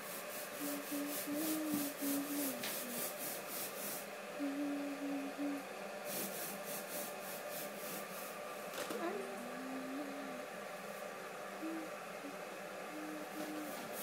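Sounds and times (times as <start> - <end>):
person humming softly: 0.5 - 3.2, 4.3 - 5.7, 9.0 - 10.6, 11.5 - 14.0.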